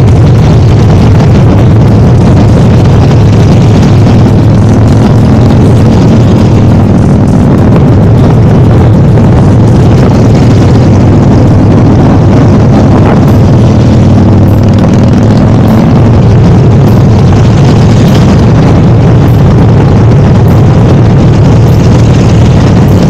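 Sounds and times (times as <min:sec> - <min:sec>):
motorcycle engine running: 0:00.0 - 0:23.0
road and wind noise: 0:00.0 - 0:23.0.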